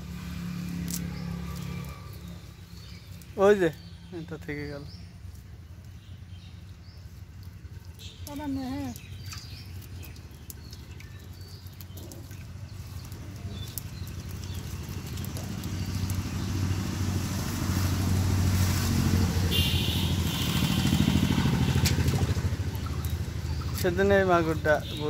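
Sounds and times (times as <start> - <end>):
engine running: 9.7 - 24.8.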